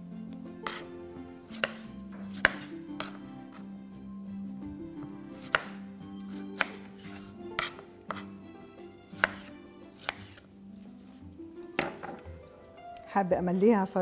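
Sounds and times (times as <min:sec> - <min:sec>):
soft background music: 0:00.0 - 0:14.0
knife tapping cutting board: 0:01.5 - 0:03.2, 0:05.4 - 0:08.2, 0:09.2 - 0:10.4, 0:11.8 - 0:12.3.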